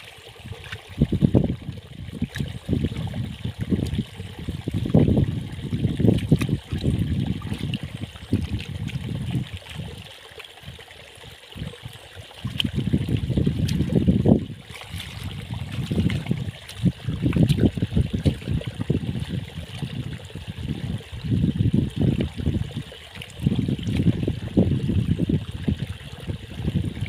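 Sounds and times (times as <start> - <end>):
hands sloshing through muddy water: 0.0 - 27.0.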